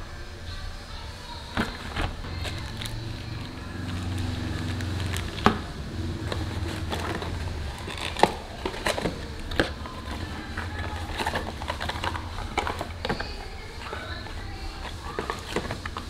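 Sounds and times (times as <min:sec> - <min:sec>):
low background rumble: 0:00.0 - 0:16.0
cardboard boxes and plastic handled: 0:01.5 - 0:16.0.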